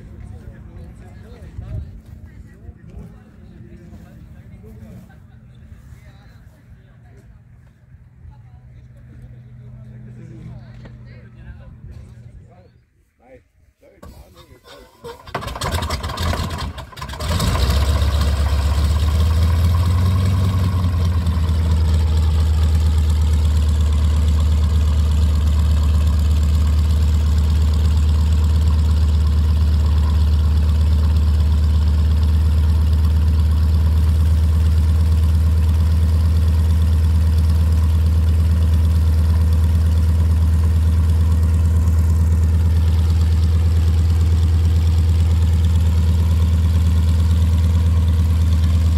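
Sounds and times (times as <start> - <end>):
radial engine starting and idling: 13.9 - 48.9.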